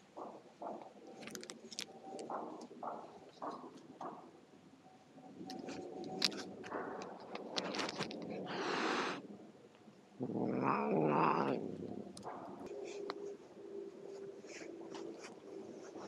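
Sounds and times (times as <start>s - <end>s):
cat hissing: 8.4s - 9.3s, 10.2s - 11.8s
cat growling: 10.2s - 13.1s
cat yowling: 10.4s - 11.6s.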